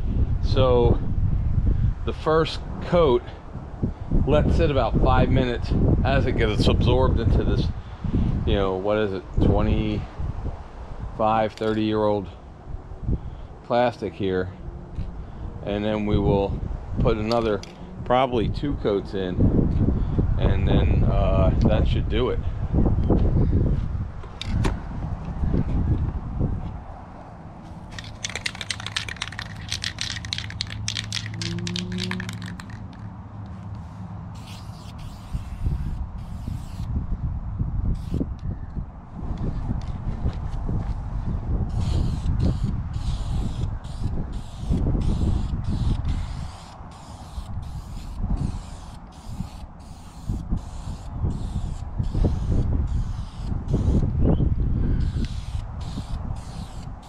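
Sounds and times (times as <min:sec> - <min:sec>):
spray can hissing: 0:27.7 - 0:33.0, 0:33.8 - 0:36.9, 0:38.0 - 0:38.2, 0:41.7 - 0:54.0, 0:55.0 - 0:57.0
aerosol can mixing ball rattling: 0:27.8 - 0:33.1.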